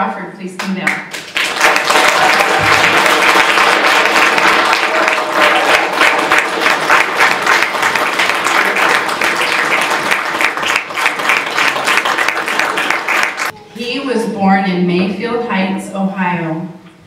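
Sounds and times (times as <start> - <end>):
audience applauding: 1.1 - 13.6.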